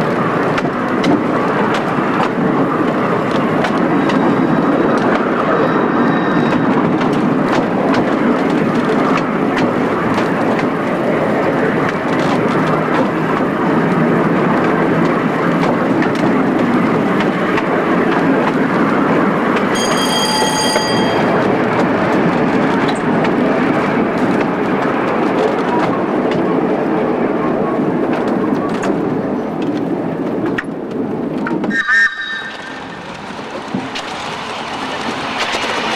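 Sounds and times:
tram wheels rumbling on rails: 0.0s - 35.9s
ringing tone: 19.8s - 21.4s.

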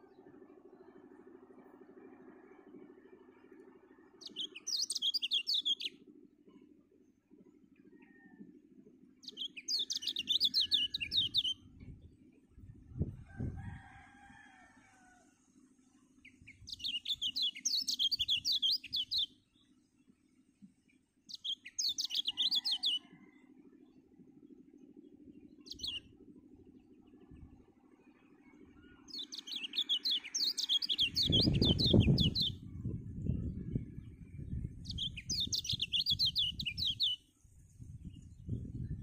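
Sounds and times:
steady low hum: 0.0s - 5.0s, 5.6s - 9.6s, 10.8s - 13.6s, 23.4s - 29.4s, 31.0s - 39.0s
bird high rapid chirping: 29.1s - 32.6s, 35.0s - 37.2s.

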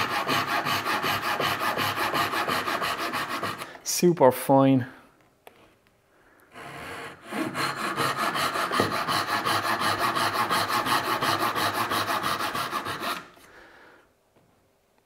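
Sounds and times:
hand saw cutting wood: 0.0s - 3.8s, 6.5s - 13.4s.

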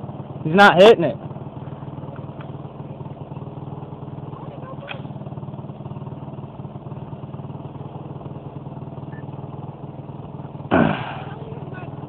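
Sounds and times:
truck engine idling: 0.0s - 12.0s
loud explosion blast: 10.7s - 11.3s.

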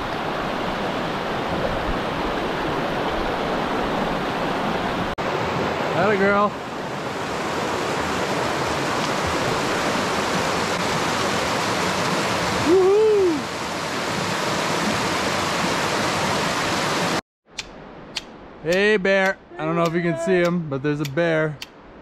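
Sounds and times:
mountain river rushing: 0.0s - 17.2s.

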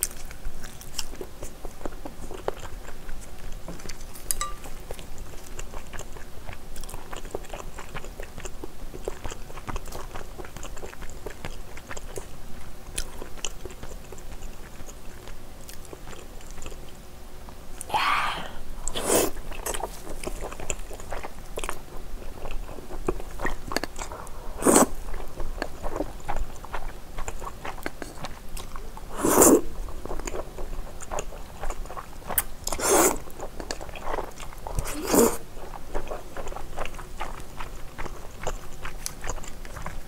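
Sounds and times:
chewing noodles: 0.0s - 17.0s, 18.8s - 40.0s
noodle slurps: 18.9s - 20.4s, 24.1s - 25.0s, 29.1s - 29.6s, 32.3s - 33.2s, 34.7s - 35.4s.

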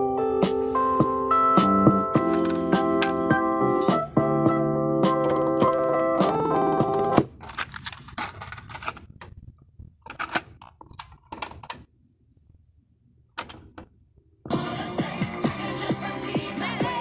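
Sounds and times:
music: 0.0s - 7.3s, 14.5s - 17.0s
cassette deck plastic clicks: 13.4s - 13.9s.

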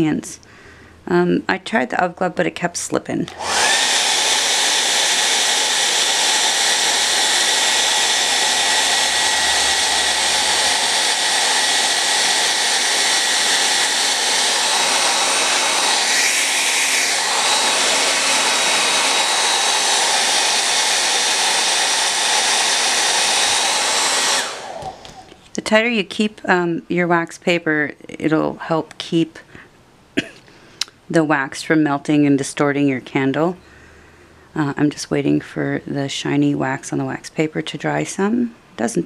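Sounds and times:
hair dryer blowing: 3.3s - 25.4s.

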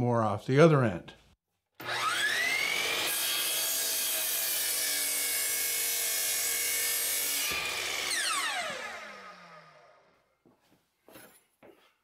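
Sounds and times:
miter saw cutting wood: 1.8s - 10.2s
saw blade spinning down: 1.8s - 10.2s.

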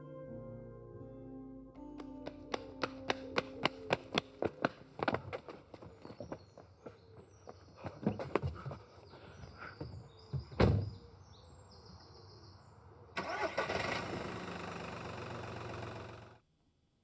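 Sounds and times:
car door thud: 10.6s - 11.0s
car engine starting and idling: 13.2s - 16.4s.

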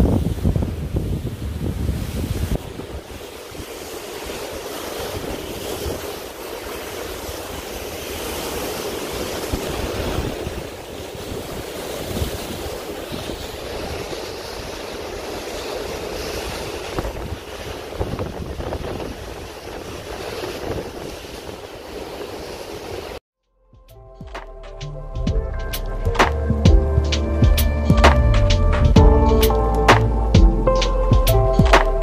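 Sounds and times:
water rushing past boat: 0.0s - 23.2s
wind gusting on microphone: 0.0s - 23.2s.

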